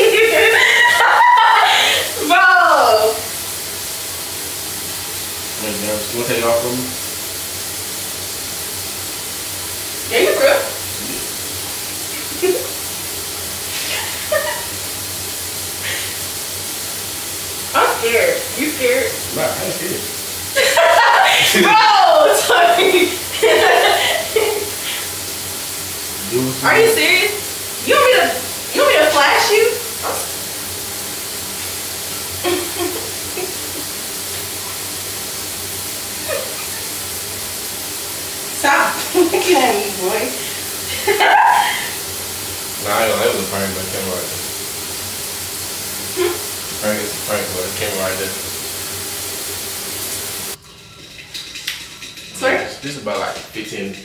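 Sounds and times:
person laughing: 0.0 - 2.3, 12.2 - 12.7, 13.8 - 14.8, 20.6 - 25.1, 32.4 - 33.9, 36.2 - 36.8, 40.9 - 42.0, 46.2 - 46.4
shower water spray: 0.0 - 54.0.

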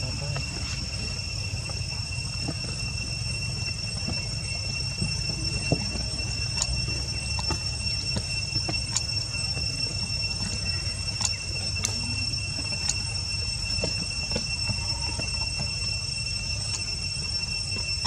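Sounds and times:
high-pitched insect drone: 0.0 - 18.0.

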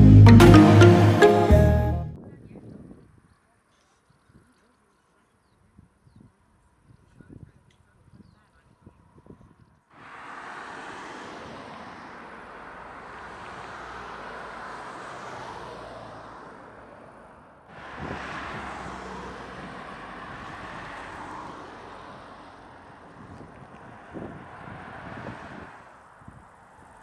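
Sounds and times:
car driving by: 0.0 - 2.1, 10.0 - 23.0.

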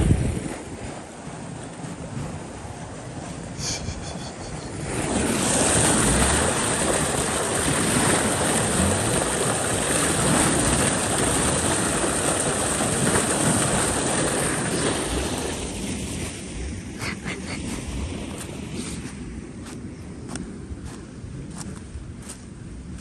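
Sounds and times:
creek water flowing: 3.4 - 19.8
water gushing from metal pipe: 3.5 - 17.6.

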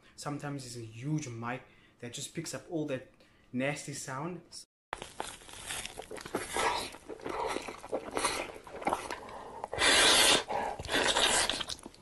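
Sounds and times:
wet chewing and mouth smacking: 5.0 - 12.0
loud noodle slurp: 5.6 - 12.0.

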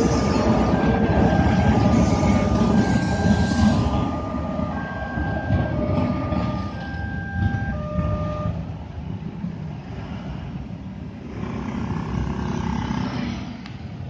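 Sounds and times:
level crossing alarm: 0.0 - 8.8
low train rumble: 0.0 - 14.0
motorcycles and cars pulling away: 9.3 - 14.0.

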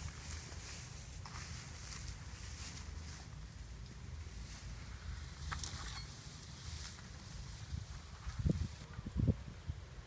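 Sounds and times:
dry straw rustling: 0.0 - 8.9
wind on microphone: 5.3 - 10.0.

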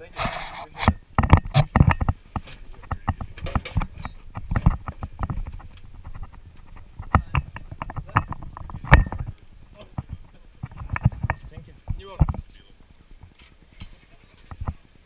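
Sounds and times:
camera handling knocks and bumps: 0.8 - 12.5.

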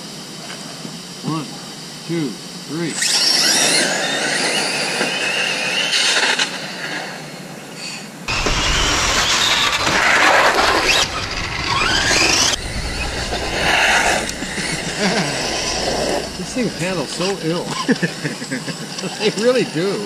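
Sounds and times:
high electric motor whine: 0.0 - 20.0
cars passing with sweeping whines: 3.3 - 7.4, 8.3 - 18.0
tyre noise: 8.3 - 17.9.

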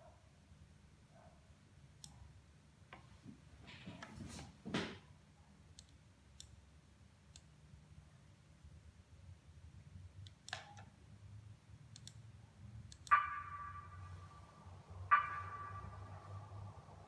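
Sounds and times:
low steady hum: 5.1 - 17.0
faint clicks: 11.9 - 12.2.

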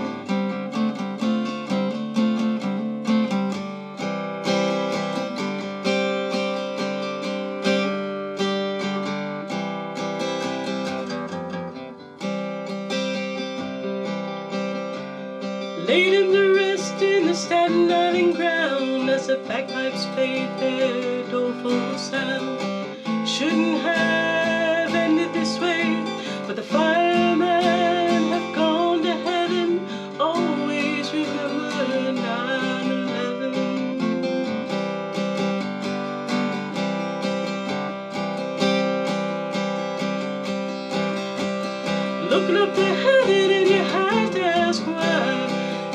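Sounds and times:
acoustic guitar strumming: 0.0 - 45.9
wordless sliding vocal melody: 41.9 - 45.9.

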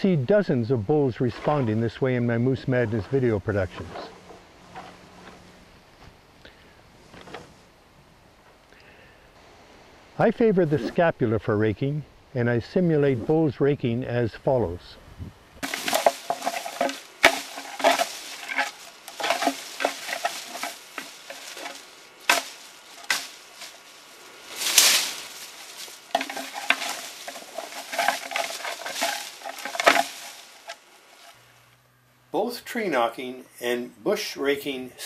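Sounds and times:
bone scraping through brush: 1.3 - 6.2, 7.0 - 7.7, 15.6 - 31.5
branches cracking: 2.7 - 6.2, 7.0 - 7.6, 15.6 - 31.8.

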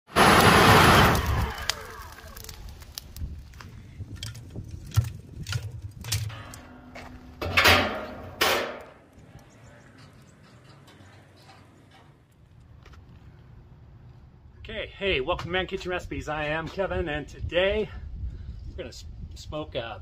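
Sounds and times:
wood clattering onto charcoal: 1.2 - 9.0
metal scrapes: 9.9 - 12.3.

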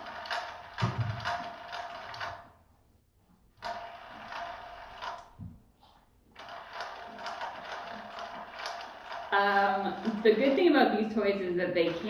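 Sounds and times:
ball rolling on plastic track: 0.0 - 2.4, 3.6 - 5.4, 6.4 - 12.0.

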